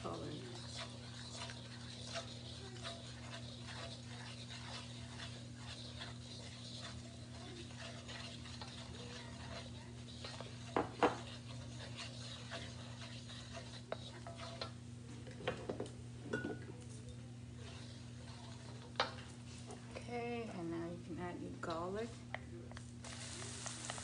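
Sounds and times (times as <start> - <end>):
wooden spoon scraping wok: 0.0 - 15.9, 17.5 - 20.0
steady low hum: 0.0 - 24.0.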